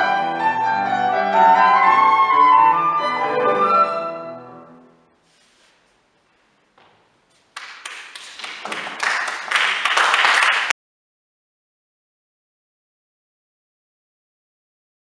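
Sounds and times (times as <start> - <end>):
audience applause: 7.6 - 10.8.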